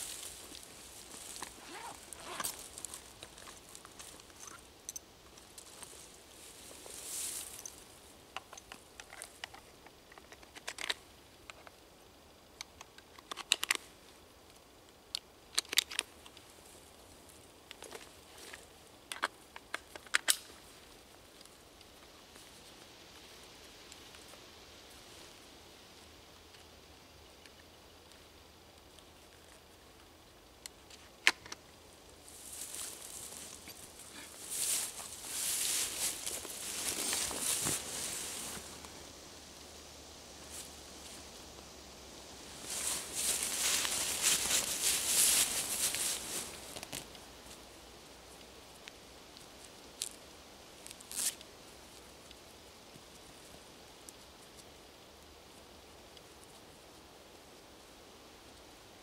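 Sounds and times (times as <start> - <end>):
rustle: 0.0 - 59.0
metallic clicks of rifle handling: 8.4 - 11.0, 12.7 - 13.8, 15.2 - 16.4, 19.1 - 20.5.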